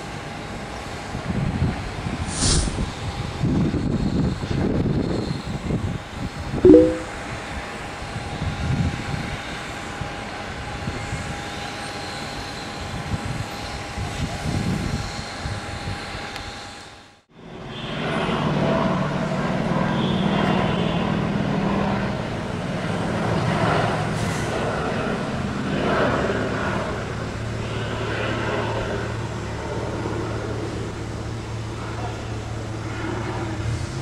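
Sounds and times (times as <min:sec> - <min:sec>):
propeller aircraft engine: 0:15.7 - 0:34.0
helicopter rotor drone: 0:17.4 - 0:34.0.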